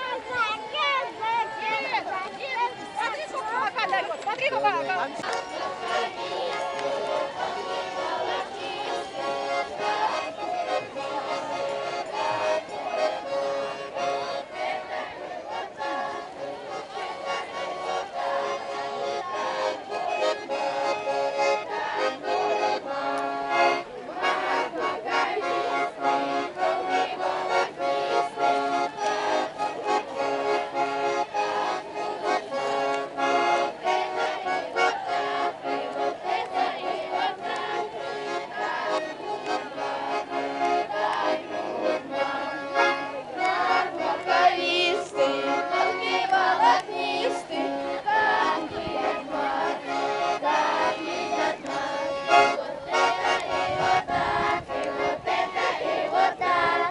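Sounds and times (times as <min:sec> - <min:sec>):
accordion folk dance tune: 0:00.0 - 0:56.9.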